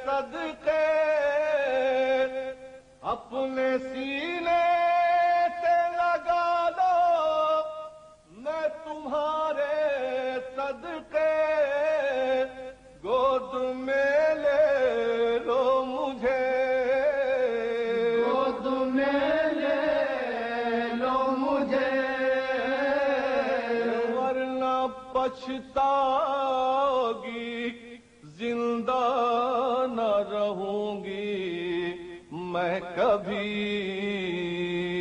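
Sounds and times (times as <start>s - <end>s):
man chanting a lament: 0.0s - 35.0s.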